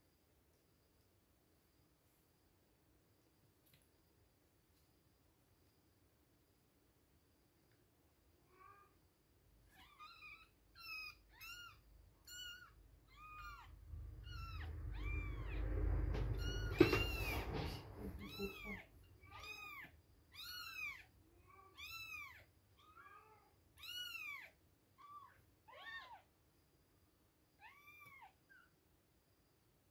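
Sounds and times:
low rumbling rustle: 13.5 - 18.7
kittens mewing: 16.4 - 26.2.

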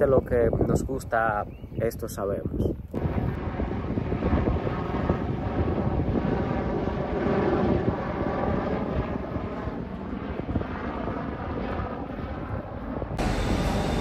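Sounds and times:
jet engines whining: 3.0 - 14.0.

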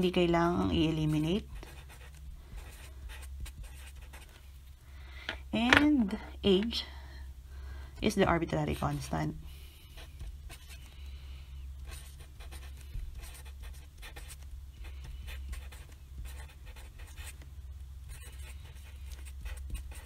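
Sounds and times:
low steady hum: 0.0 - 20.0
marker writing on paper: 1.0 - 4.4, 11.8 - 17.4, 18.0 - 20.0.

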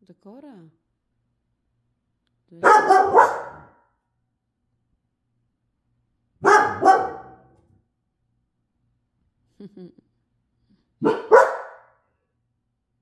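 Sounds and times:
dog barking: 2.6 - 3.9, 6.4 - 7.6, 11.0 - 12.0.

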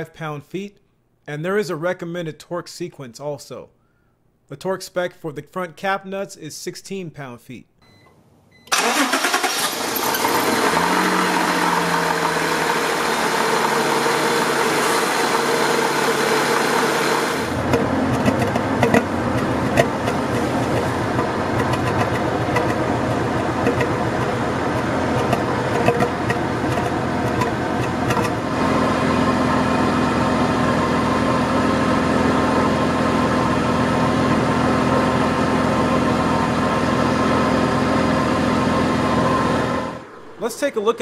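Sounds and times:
car exhaust idling: 10.2 - 40.4.

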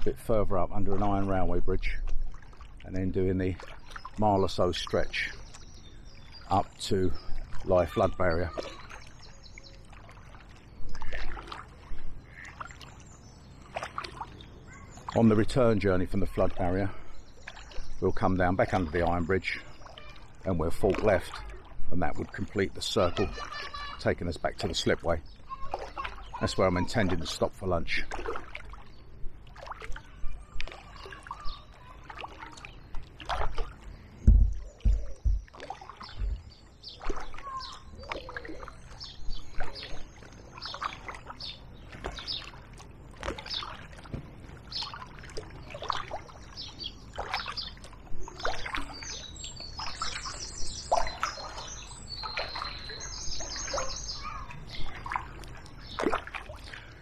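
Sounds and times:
kayak paddle splashing in water: 0.8 - 57.0
bird chirping: 2.9 - 27.8, 30.0 - 32.0, 33.8 - 42.6, 45.8 - 57.0
low knocks: 34.2 - 36.5.

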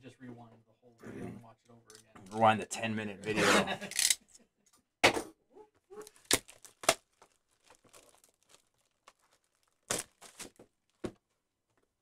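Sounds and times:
plastic wrap crinkling: 5.9 - 11.2.

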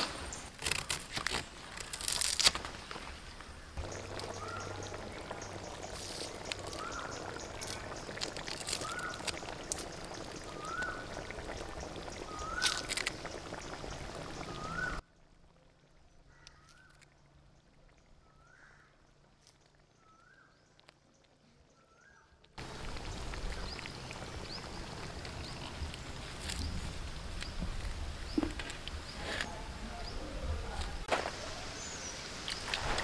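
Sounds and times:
curry bubbling in a pan: 3.8 - 15.0, 22.6 - 26.8.

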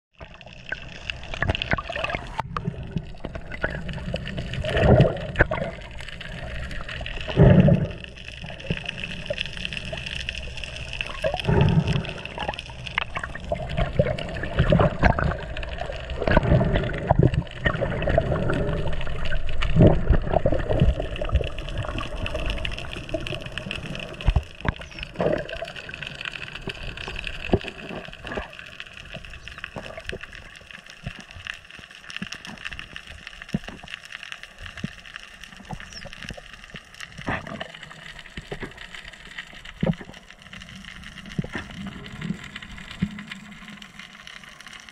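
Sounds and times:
water gurgling and rushing: 0.2 - 44.9
low water swells: 0.6 - 30.4.

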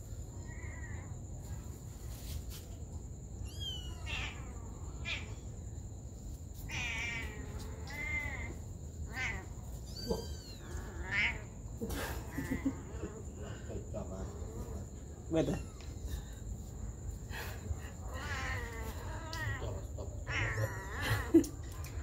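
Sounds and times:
kitten mewing: 6.7 - 11.5, 18.1 - 21.6.

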